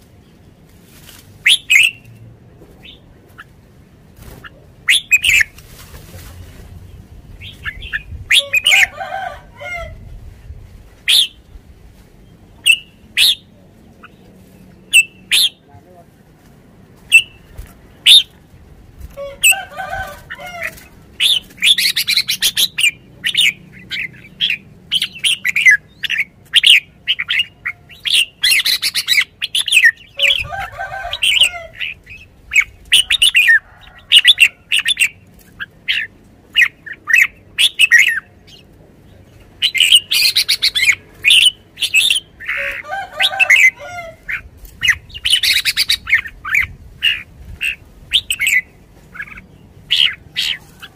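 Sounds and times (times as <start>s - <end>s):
bird chirping: 1.4s - 2.2s, 4.4s - 5.6s, 12.2s - 15.7s, 20.7s - 30.4s, 34.2s - 42.8s, 43.4s - 50.9s.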